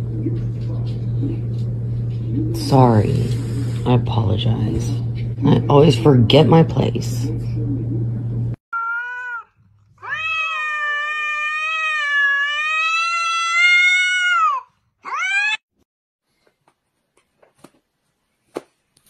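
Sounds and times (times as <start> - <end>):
cat yowling: 8.7 - 15.6.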